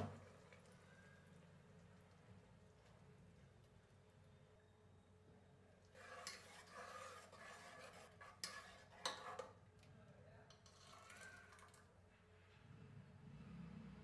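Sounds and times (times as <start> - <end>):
ladle scraping in pot: 5.8 - 9.6, 10.5 - 11.9.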